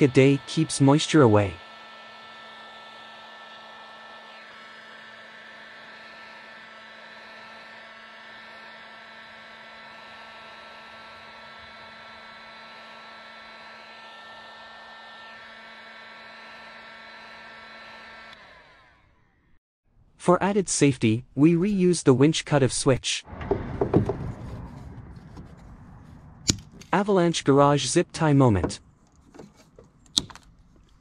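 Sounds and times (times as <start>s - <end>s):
machine hum with whining tones: 0.0s - 19.6s, 23.3s - 27.0s.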